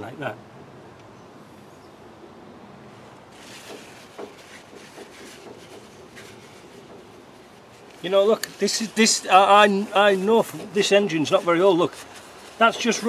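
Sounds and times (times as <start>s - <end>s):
paper towel rustling: 3.3s - 13.0s.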